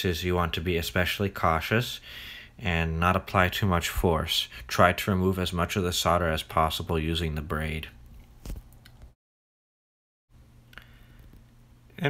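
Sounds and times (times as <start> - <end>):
low steady hum: 10.4 - 12.0.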